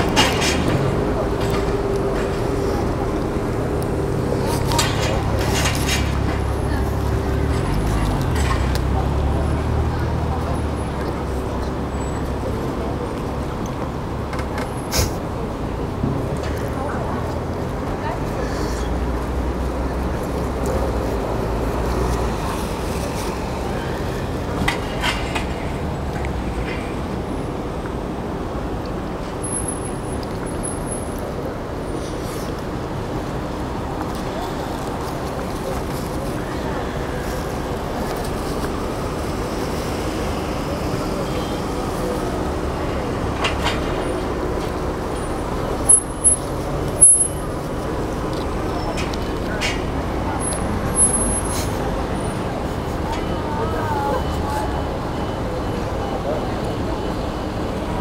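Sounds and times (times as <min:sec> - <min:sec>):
road traffic rumble: 0:00.0 - 0:58.0.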